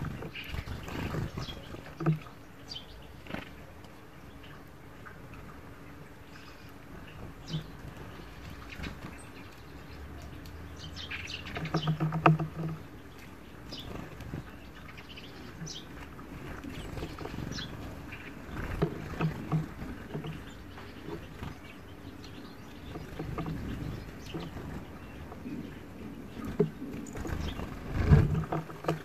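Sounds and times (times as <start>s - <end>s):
faint bird chirps: 5.9s - 16.0s.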